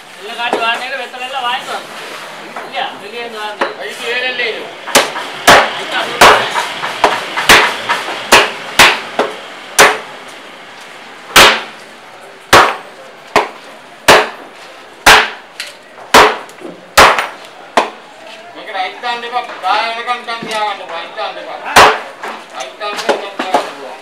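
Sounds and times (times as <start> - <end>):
cleaver chopping on wooden block: 4.9 - 10.0, 11.4 - 11.7, 13.4 - 14.4, 15.0 - 15.4, 16.1 - 18.0.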